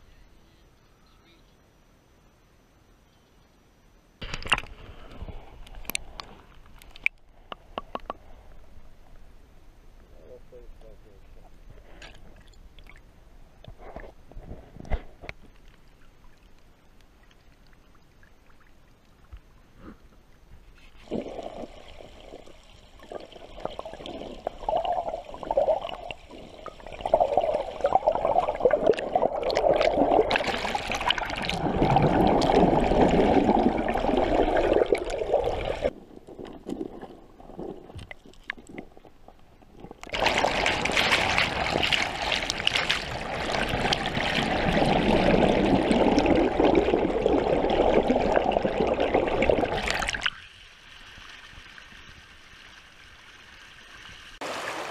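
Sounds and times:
underwater river gurgling: 15.8 - 54.9.

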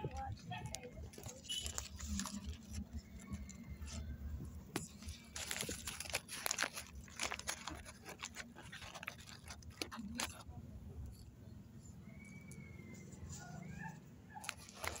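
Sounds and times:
rustling and crackling: 0.0 - 11.2, 14.4 - 15.0.

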